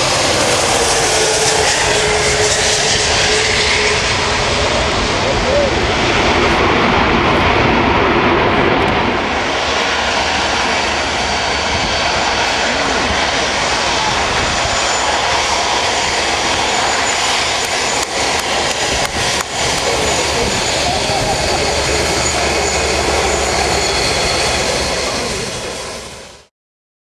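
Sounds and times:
jet engines rushing: 0:00.0 - 0:26.5.

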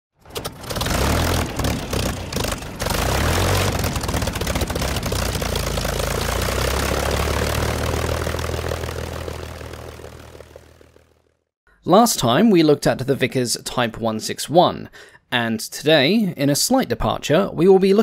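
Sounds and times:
propeller aircraft engine droning: 0:00.2 - 0:11.4.

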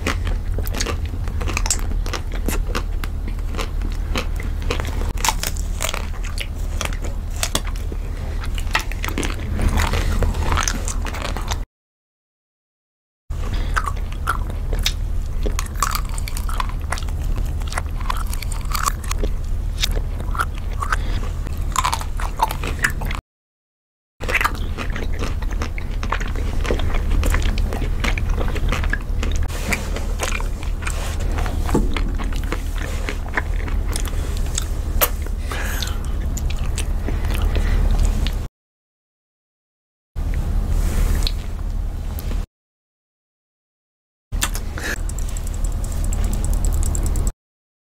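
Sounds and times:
biting and chewing ice cream bars: 0:00.0 - 0:11.6, 0:13.4 - 0:23.2, 0:24.2 - 0:38.5, 0:44.4 - 0:47.3
steady low hum: 0:00.0 - 0:11.6, 0:13.3 - 0:23.2, 0:24.2 - 0:38.5, 0:40.2 - 0:42.5, 0:44.4 - 0:47.3.

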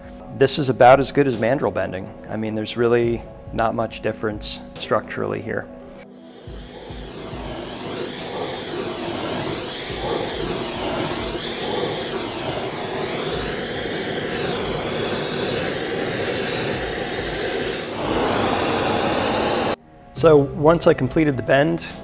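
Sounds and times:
gas torch flame hissing: 0:06.1 - 0:19.8.

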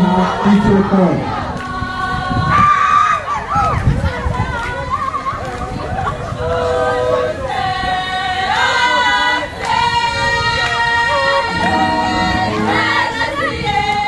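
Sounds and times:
group of voices singing: 0:01.2 - 0:02.6, 0:06.4 - 0:14.0
crowd noise: 0:03.2 - 0:14.0.

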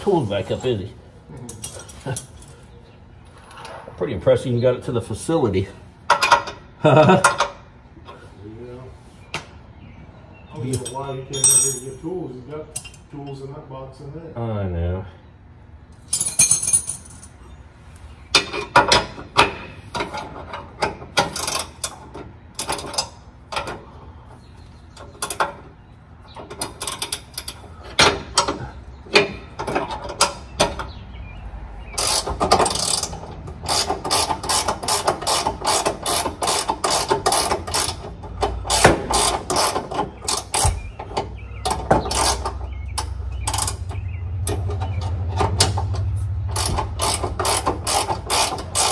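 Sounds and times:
ratchet wrench clicking: 0:32.0 - 0:38.0, 0:46.5 - 0:48.9.

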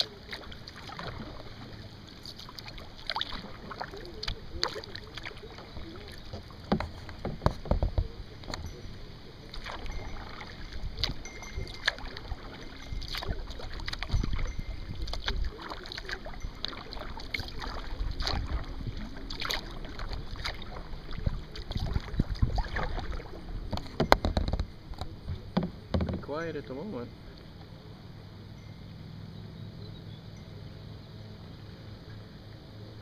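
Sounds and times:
paddle splashing in water: 0:00.0 - 0:27.7
wind rumble on microphone: 0:04.2 - 0:30.4.

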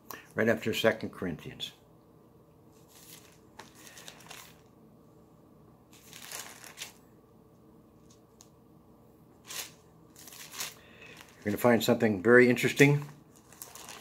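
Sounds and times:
book pages rustling: 0:02.7 - 0:04.7, 0:05.9 - 0:07.0, 0:09.4 - 0:11.6, 0:12.6 - 0:14.0.

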